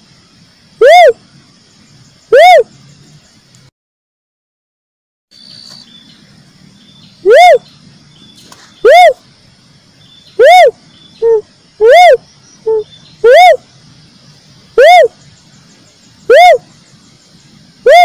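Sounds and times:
dove hooting call: 0.8 - 1.2, 2.3 - 2.7, 7.2 - 7.7, 8.8 - 9.2, 10.4 - 13.6, 14.8 - 15.2, 16.2 - 16.7.

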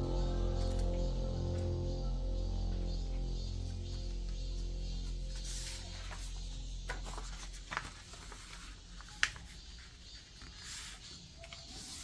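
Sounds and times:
paper rustling and crinkling: 5.3 - 12.0.

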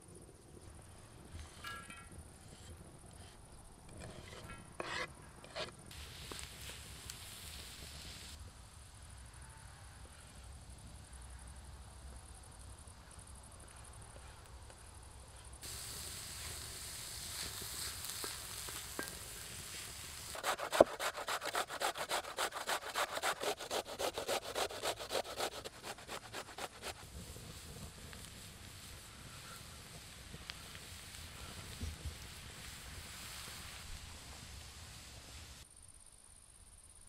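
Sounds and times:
wooden spatula scraping pan: 1.5 - 5.7, 17.3 - 33.8.

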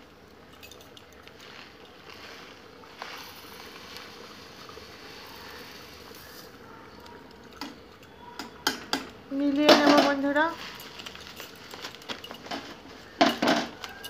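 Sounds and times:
faint steady hiss: 0.0 - 14.0
plastic bag rustling: 0.3 - 7.4, 9.4 - 14.0
sugar pouring into a pan: 1.2 - 6.6.

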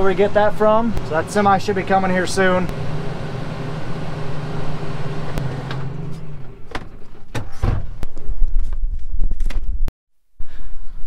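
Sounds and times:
tractor engine running: 0.0 - 7.3
cab door thump: 6.7 - 8.0.

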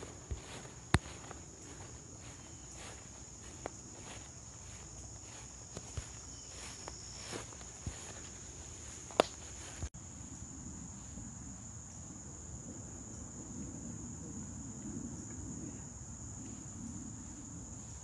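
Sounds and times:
footsteps in long grass: 0.0 - 10.0, 16.4 - 18.0
insect chorus: 0.0 - 18.0.

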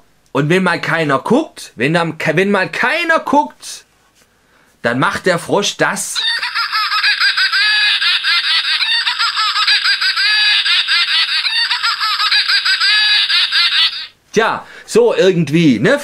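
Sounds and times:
toy playing cackling laughter: 6.2 - 14.2.

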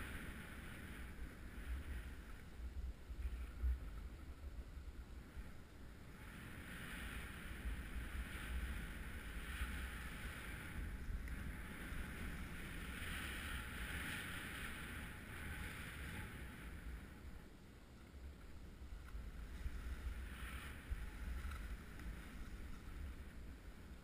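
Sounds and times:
wind rumbling on microphone: 0.0 - 24.0
skis scraping on snow: 6.1 - 17.3, 18.8 - 24.0.

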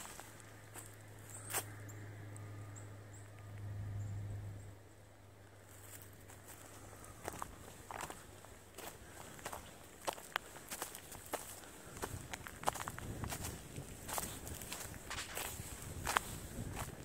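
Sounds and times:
footsteps on dry leaves: 0.0 - 1.8, 5.7 - 17.0
low hum: 0.0 - 10.0.

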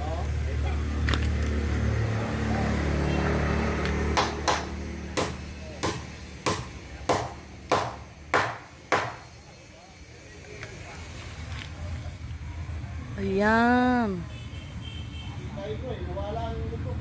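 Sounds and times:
hammer blows: 4.2 - 9.3.

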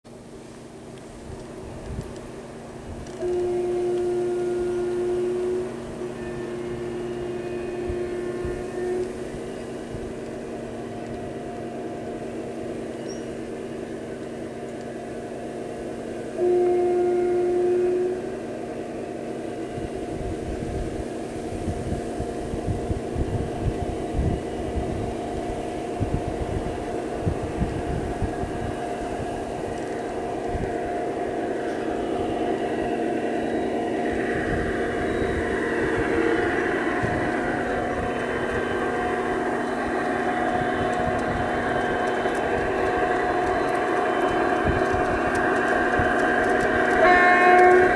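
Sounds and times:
train rattling: 0.1 - 47.9
two-tone horn blast: 3.1 - 11.9, 16.2 - 47.9
diesel engine drone from loudspeaker: 19.8 - 47.9.

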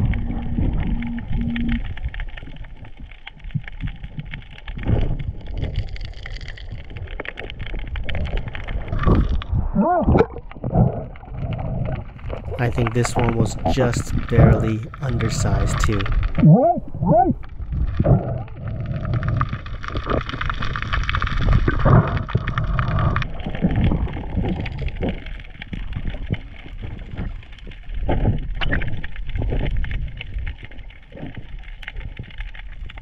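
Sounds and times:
muffled underwater noise: 0.0 - 3.1, 8.2 - 20.6.

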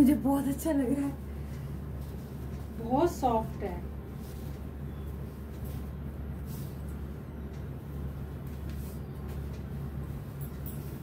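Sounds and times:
low room hum: 0.0 - 11.0
fabric rustling: 4.1 - 7.1.

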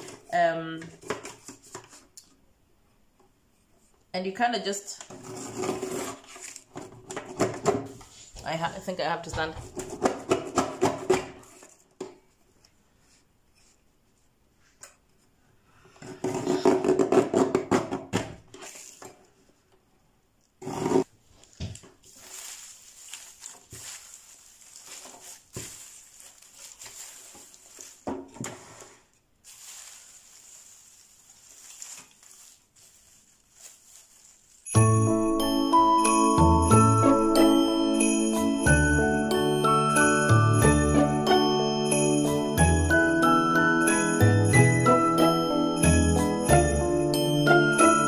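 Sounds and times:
paper strips rustling: 5.2 - 6.9, 18.6 - 19.3, 21.2 - 34.8.

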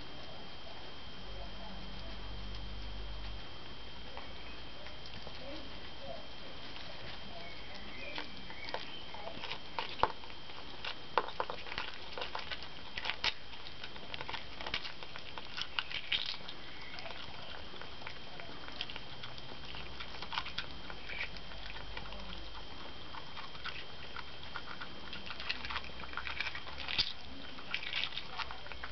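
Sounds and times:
animals chewing: 0.0 - 28.9
eggshells cracking and crunching: 6.7 - 28.9.

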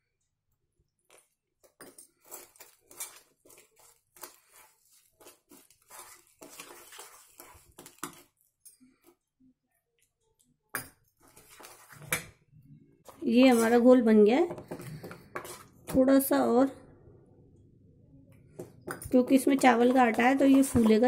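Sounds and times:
metal spoon scraping pot: 1.8 - 8.4, 14.8 - 15.7, 18.9 - 21.0.

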